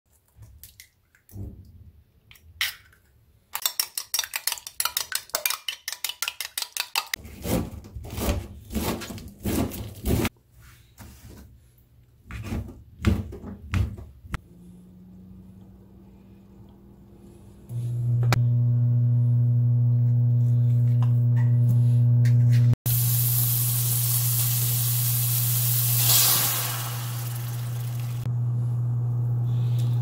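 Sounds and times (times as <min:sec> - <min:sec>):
eggs cracked on bowl: 0:03.6 - 0:07.2
spoon beating eggs in bowl: 0:03.6 - 0:07.2.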